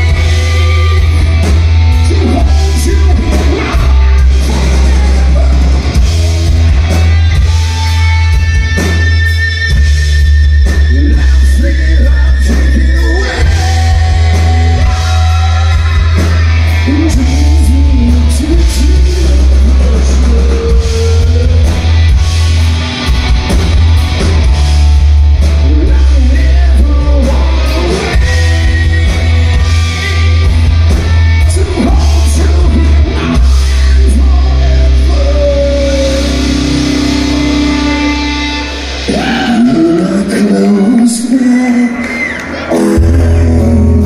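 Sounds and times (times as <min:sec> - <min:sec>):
heavy bass line: 0:00.0 - 0:41.9, 0:42.5 - 0:44.0
drums: 0:00.0 - 0:44.0
electric guitar: 0:00.0 - 0:44.0
man singing into microphone: 0:01.9 - 0:05.9, 0:10.8 - 0:21.7, 0:25.6 - 0:30.4, 0:31.3 - 0:36.6, 0:39.1 - 0:44.0.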